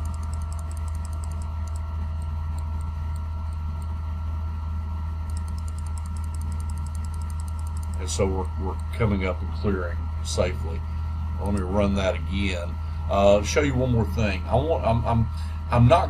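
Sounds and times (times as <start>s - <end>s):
rapid high-pitched ticking: 0.0s - 3.9s, 5.3s - 9.0s
faint steady high tones: 0.0s - 16.0s
low electrical hum: 0.0s - 16.0s.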